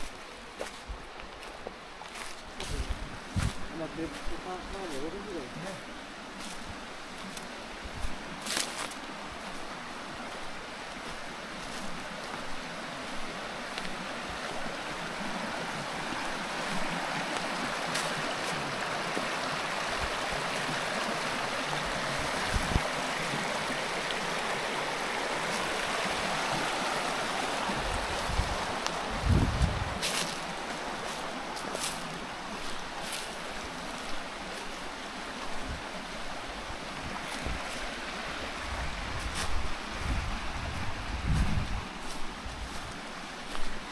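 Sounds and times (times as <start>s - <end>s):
stream water rushing: 0.0s - 43.9s.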